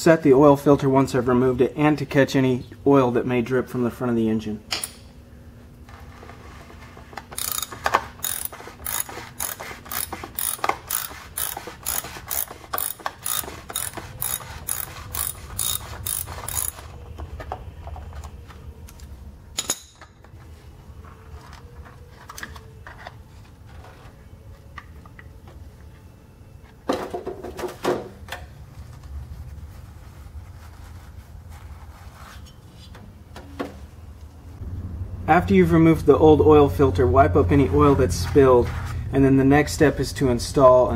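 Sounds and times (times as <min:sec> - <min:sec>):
hand ratchet clicking: 0:07.3 - 0:16.8.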